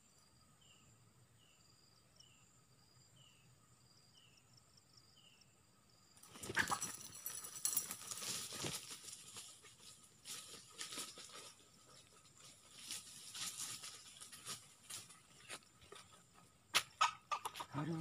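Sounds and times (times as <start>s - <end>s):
rustling in dry leaves: 6.2s - 15.7s.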